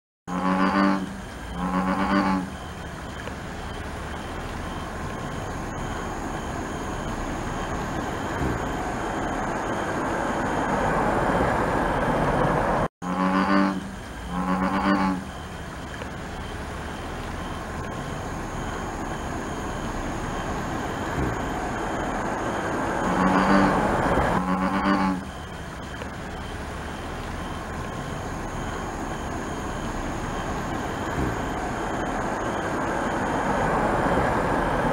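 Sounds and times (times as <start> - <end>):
bullfrog calling: 0.3 - 2.7, 13.0 - 15.4, 23.0 - 26.1
steady background noise: 0.3 - 34.9.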